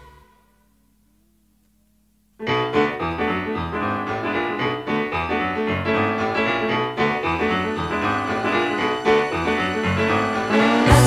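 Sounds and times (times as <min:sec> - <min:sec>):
instrumental pop music with keyboard: 0:02.8 - 0:11.0.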